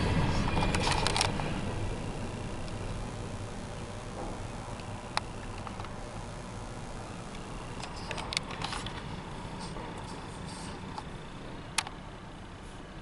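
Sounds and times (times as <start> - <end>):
low vehicle cabin rumble: 0.0 - 12.6
sharp ticks and clicks: 4.7 - 6.2.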